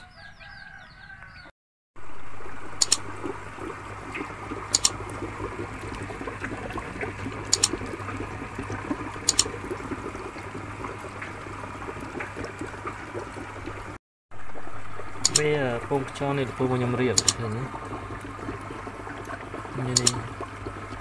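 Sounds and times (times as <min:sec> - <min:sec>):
water trickling: 0:02.0 - 0:21.0
sharp clicks: 0:02.8 - 0:03.0, 0:04.7 - 0:05.0, 0:07.5 - 0:07.8, 0:15.2 - 0:15.5, 0:17.2 - 0:17.5, 0:19.9 - 0:20.2.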